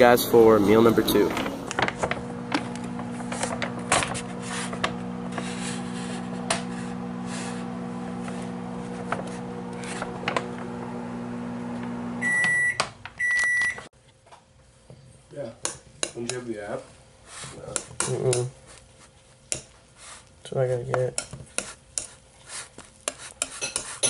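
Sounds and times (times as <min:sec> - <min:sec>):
microwave oven humming: 0:00.0 - 0:13.9
microwave beeps: 0:11.9 - 0:13.9.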